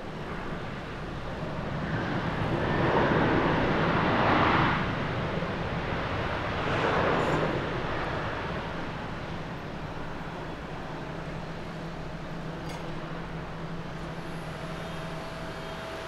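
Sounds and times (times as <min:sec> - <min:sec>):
jet engines running: 0:00.0 - 0:16.0
faint high whine: 0:09.6 - 0:16.0.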